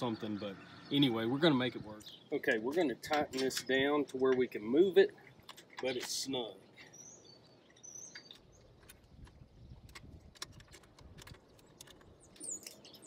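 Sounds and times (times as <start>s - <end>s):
bird chirps: 0.0s - 2.4s, 5.2s - 9.9s, 11.4s - 13.0s
distant traffic rumble: 0.0s - 13.0s.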